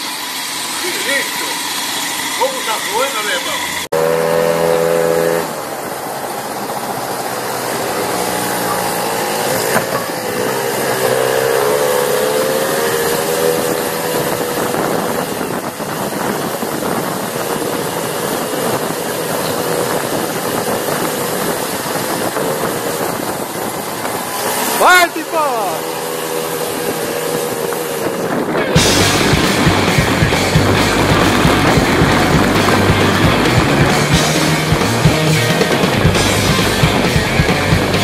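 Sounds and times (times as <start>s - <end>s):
moped engines running: 0.0s - 38.0s
wind noise: 8.6s - 38.0s.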